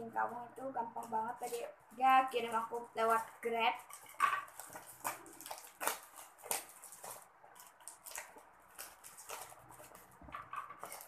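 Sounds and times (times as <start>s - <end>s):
mailer package crinkling: 2.6s - 11.0s.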